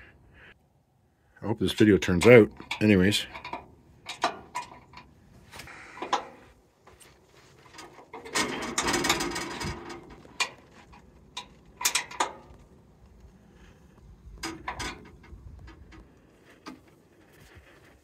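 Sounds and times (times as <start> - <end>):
wrench clicking and knocking on bolts: 2.6 - 5.1, 8.1 - 12.6, 14.4 - 16.0.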